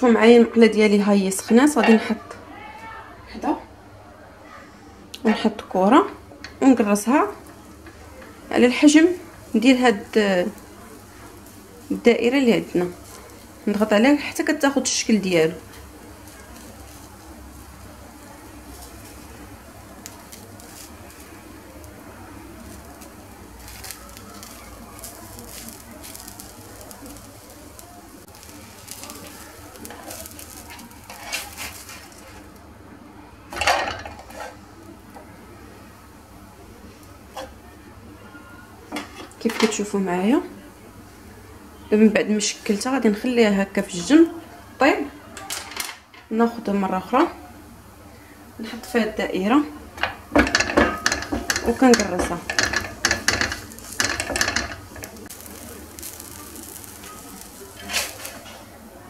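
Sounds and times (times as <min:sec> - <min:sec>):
dough sizzling on griddle: 0:05.2 - 0:59.0
spatula scraping frying pan: 0:07.3 - 0:32.5, 0:33.6 - 0:34.7, 0:50.0 - 0:58.7.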